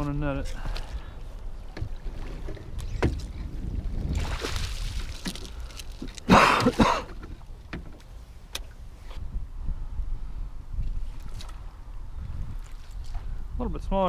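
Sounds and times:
water splashing off net: 0:04.1 - 0:05.4.

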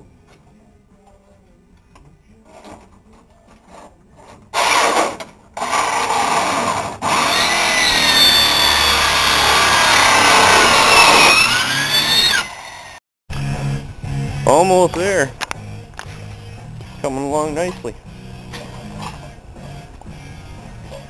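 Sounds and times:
power saw cutting sheet metal: 0:04.6 - 0:13.0.

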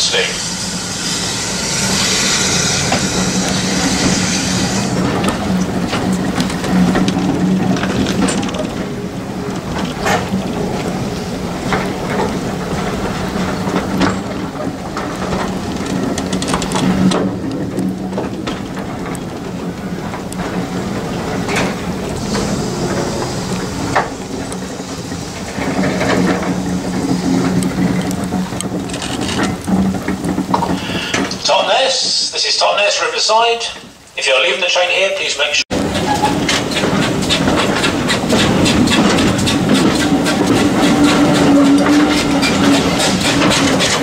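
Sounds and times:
rain and wind on microphone: 0:00.0 - 0:34.3, 0:35.7 - 0:44.0
train coaches rolling past: 0:00.0 - 0:44.0
clicks and knocks from wheels: 0:05.0 - 0:10.9, 0:11.7 - 0:31.4, 0:35.8 - 0:44.0.

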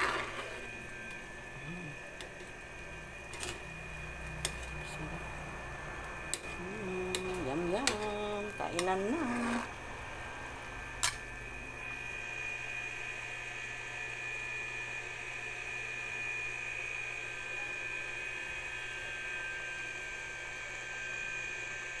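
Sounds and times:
high-pitched electric whine: 0:00.0 - 0:14.4.

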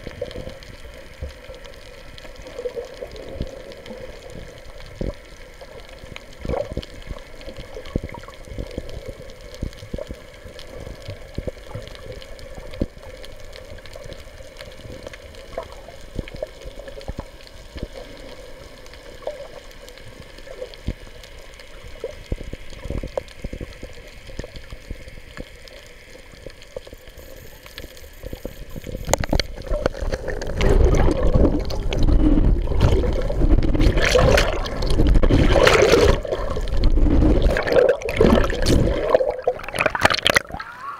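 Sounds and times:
sharp underwater clicks: 0:20.7 - 0:40.8
muffled underwater noise: 0:21.7 - 0:40.9
water sloshing against camera: 0:27.2 - 0:40.9.

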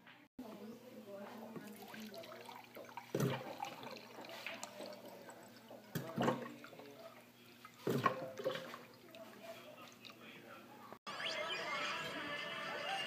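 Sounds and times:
water pouring into a glass mug: 0:01.6 - 0:10.2.

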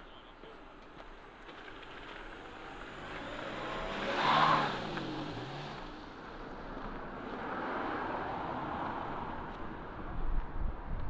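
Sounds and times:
car passing by: 0:02.2 - 0:10.1.

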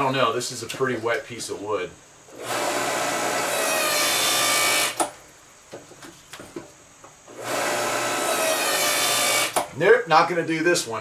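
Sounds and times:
log splitter motor and pump: 0:02.3 - 0:05.2, 0:07.3 - 0:09.8.

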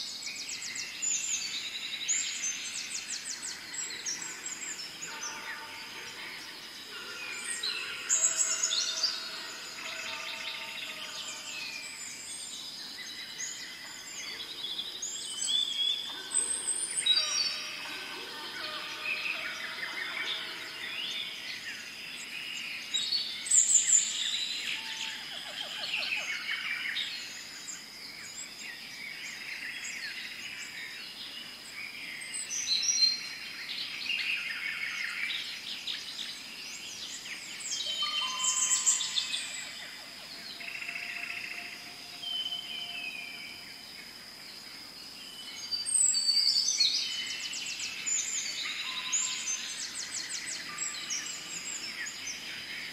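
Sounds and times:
birds chirping and trilling: 0:00.0 - 0:52.9
high insect drone: 0:38.4 - 0:46.2.

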